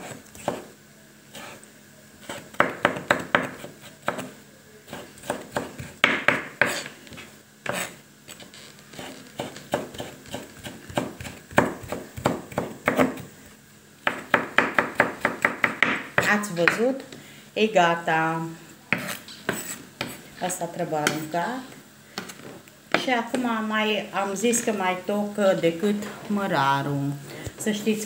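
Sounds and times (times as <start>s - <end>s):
knife chopping on wooden board: 0.0s - 0.7s, 2.3s - 4.3s, 4.9s - 6.9s, 9.0s - 13.3s, 14.0s - 16.8s, 18.9s - 20.2s.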